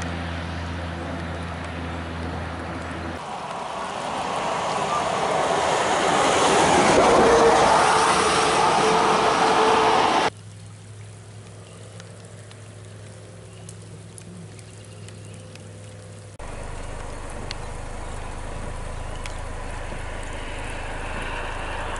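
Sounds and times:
floodwater rushing in a ditch: 0:00.0 - 0:21.9
faint ticks: 0:10.6 - 0:18.2
low hum: 0:15.9 - 0:21.9.

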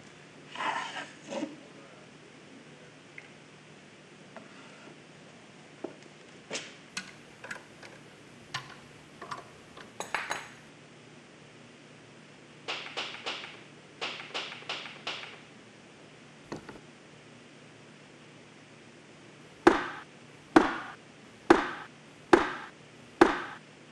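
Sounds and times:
clinks and knocks of handled mould: 0:08.5 - 0:10.6
hammer striking steel rod: 0:19.6 - 0:20.0, 0:20.6 - 0:23.6.

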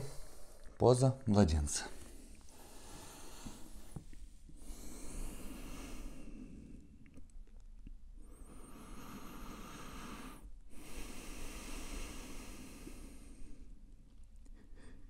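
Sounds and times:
person breathing through nose: 0:02.0 - 0:04.0, 0:04.6 - 0:07.0, 0:08.2 - 0:13.8.

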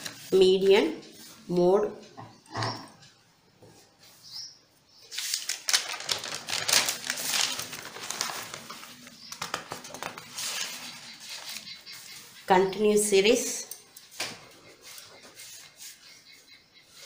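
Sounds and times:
paper pages rustling and crackling: 0:00.0 - 0:00.3, 0:05.1 - 0:12.2.

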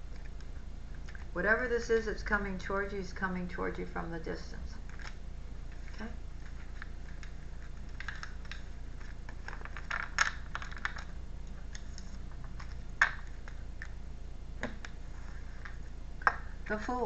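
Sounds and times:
card rustle: 0:04.9 - 0:14.0
cards clicking and snapping: 0:06.6 - 0:14.0.

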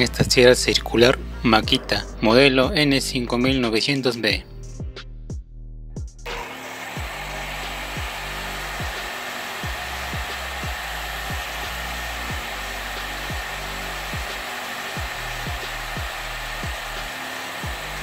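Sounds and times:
background music with bass beat: 0:00.0 - 0:06.4, 0:07.0 - 0:18.0
circular saw motor running: 0:06.3 - 0:18.0.

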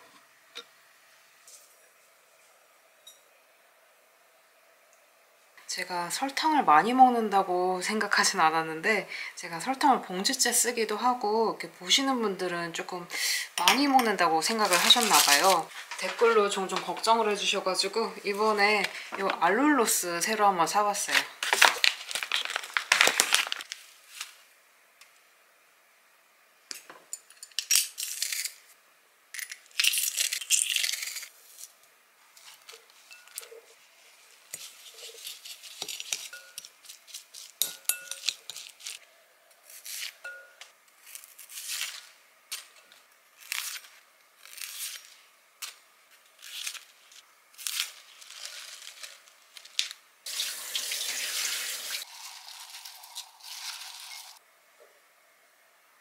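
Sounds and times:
leaves rustling in a glass bowl: 0:13.9 - 0:17.5, 0:21.0 - 0:24.4, 0:29.8 - 0:54.4
cabbage leaves snapping and tearing: 0:21.4 - 0:23.8, 0:41.0 - 0:42.7, 0:43.4 - 0:45.8, 0:46.4 - 0:50.0.

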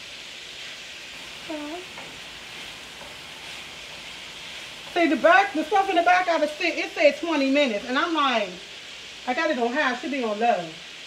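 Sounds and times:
vegetables sizzling in a skillet: 0:00.0 - 0:11.0
utensil stirring: 0:01.1 - 0:06.2
person humming: 0:01.5 - 0:01.9.

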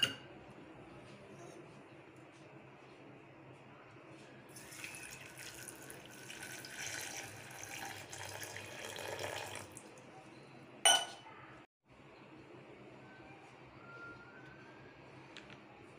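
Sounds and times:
water pouring into a metal jar: 0:04.5 - 0:09.9.

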